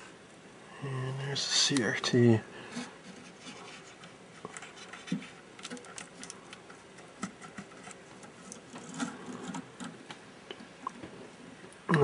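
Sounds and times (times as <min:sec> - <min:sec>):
fingers clicking and rustling wiring: 0:02.8 - 0:10.2.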